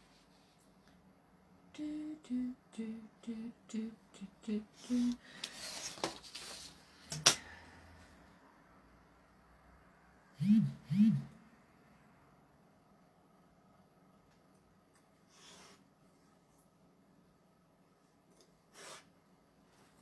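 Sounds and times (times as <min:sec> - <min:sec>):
woman humming: 0:01.7 - 0:05.2, 0:10.4 - 0:11.4.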